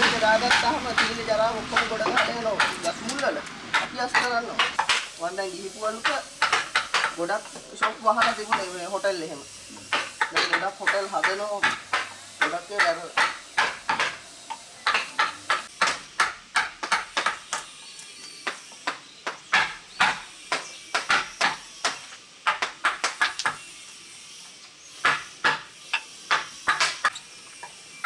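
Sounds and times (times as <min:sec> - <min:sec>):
chisel chopping into wood: 0:01.8 - 0:05.1, 0:06.0 - 0:07.2, 0:09.8 - 0:14.2, 0:14.9 - 0:17.6, 0:18.4 - 0:23.6, 0:25.0 - 0:25.7, 0:26.3 - 0:27.2.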